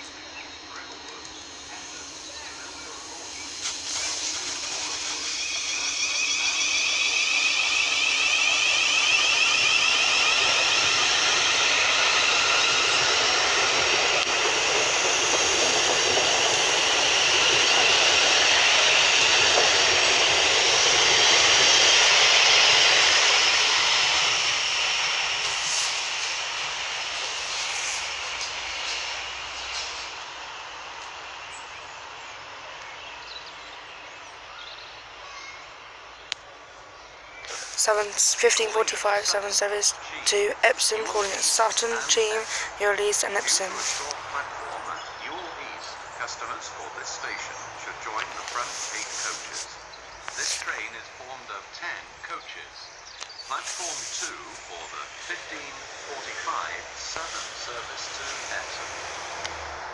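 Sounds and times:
electric train motor whine: 0.0s - 36.2s, 53.0s - 59.9s.

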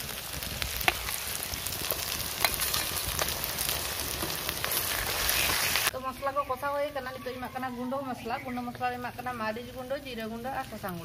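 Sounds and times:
oil crackling and popping: 0.0s - 6.0s, 8.1s - 11.0s
onions sizzling in oil: 0.0s - 11.0s.

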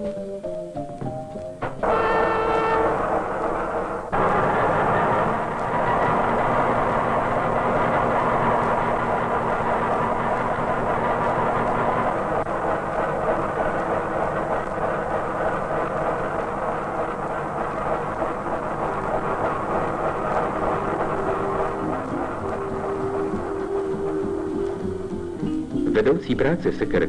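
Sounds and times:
train rumbling on track: 1.1s - 27.0s
faint steady hum: 16.8s - 27.0s.

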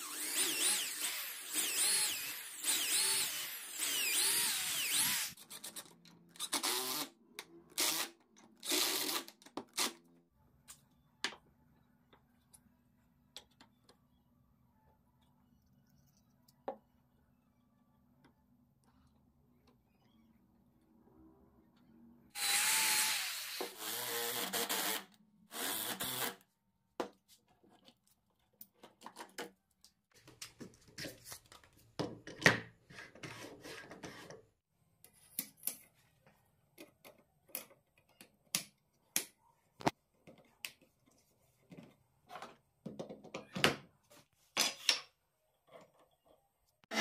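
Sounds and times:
power drill driving screws: 0.0s - 5.4s, 6.4s - 7.1s, 7.8s - 9.3s, 22.4s - 26.4s.

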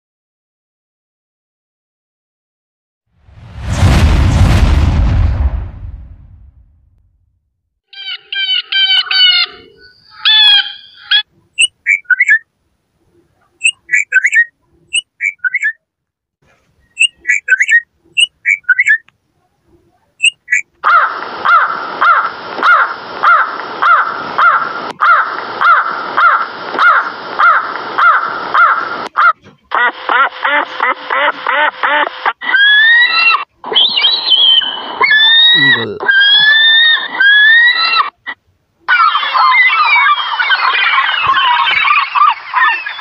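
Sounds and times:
harsh jay calls: 8.0s - 12.4s, 13.5s - 15.8s, 17.0s - 19.0s, 20.2s - 38.3s
bird chirping: 8.0s - 12.5s, 13.1s - 15.8s, 16.8s - 19.1s, 20.2s - 20.7s, 32.8s - 38.1s, 38.9s - 43.0s
crow cawing: 20.8s - 29.4s.

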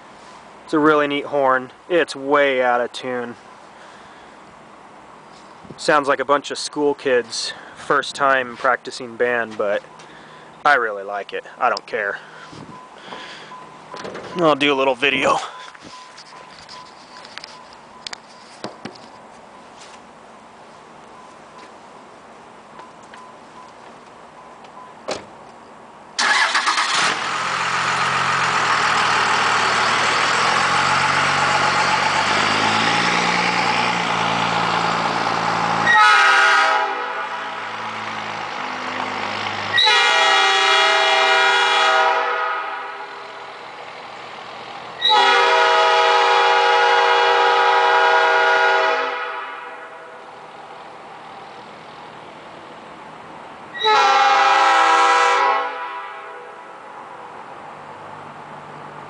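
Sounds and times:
out-of-tune train horn blasts: 35.8s - 37.9s, 39.7s - 43.4s, 45.0s - 50.3s, 53.8s - 56.8s.

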